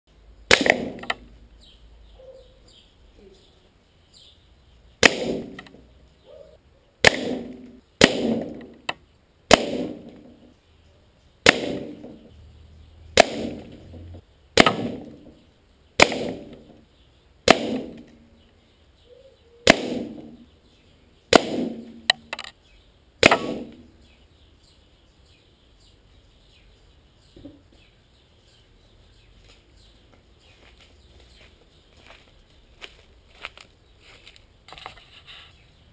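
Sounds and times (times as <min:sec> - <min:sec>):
air rifle shots: 0:00.5 - 0:01.3, 0:05.0 - 0:05.8, 0:07.0 - 0:08.9, 0:09.5 - 0:10.5, 0:11.4 - 0:12.3, 0:13.1 - 0:15.4, 0:16.0 - 0:16.8, 0:17.4 - 0:18.2, 0:19.6 - 0:20.4, 0:21.3 - 0:22.3, 0:23.2 - 0:23.9.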